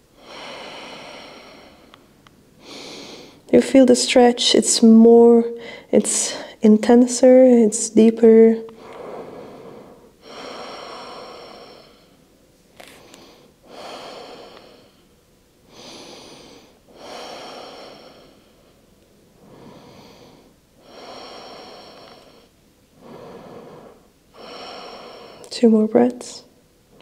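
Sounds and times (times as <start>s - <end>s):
woman breathing deeply: 0.0s - 3.5s, 5.6s - 6.6s, 8.7s - 25.5s.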